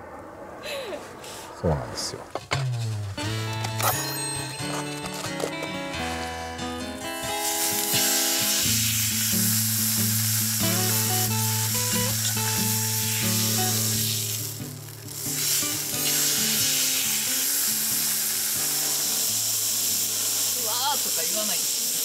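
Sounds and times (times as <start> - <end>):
steak sizzling on griddle: 4.1 - 22.0.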